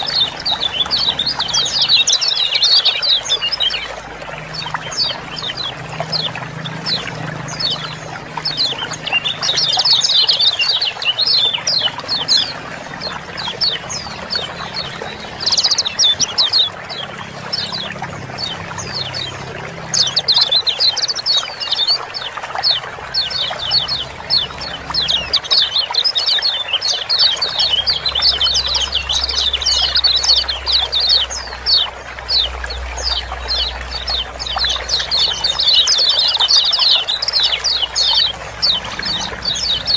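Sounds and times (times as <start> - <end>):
birds chattering calls: 0.0 - 39.9
water trickling: 0.0 - 39.9.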